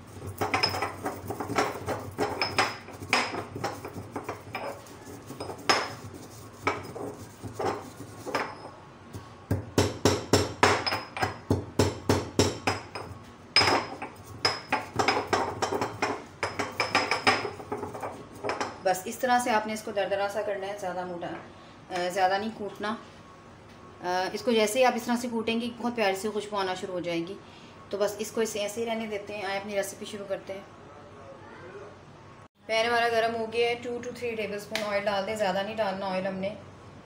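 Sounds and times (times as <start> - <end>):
stone pestle pounding seeds: 0.0 - 18.8.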